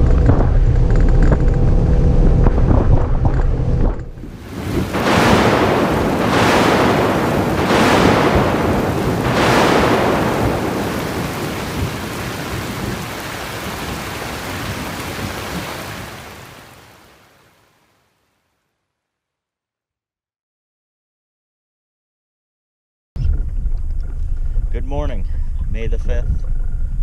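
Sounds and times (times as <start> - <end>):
rolling thunder: 0.0 - 17.1
rain: 0.0 - 18.8.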